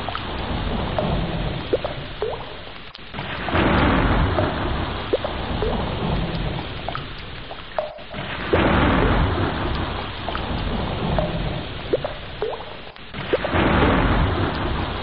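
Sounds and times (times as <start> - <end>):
rain falling on water: 0.0 - 15.0
thunder rolling: 3.2 - 6.7, 8.1 - 12.1, 13.2 - 15.0.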